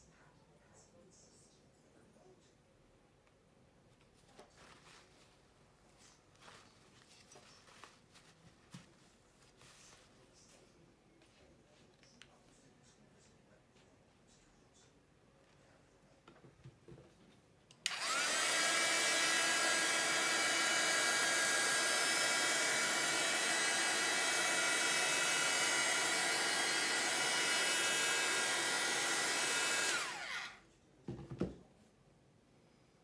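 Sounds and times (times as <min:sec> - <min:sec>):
hot-air blower motor whine: 0:17.8 - 0:30.6.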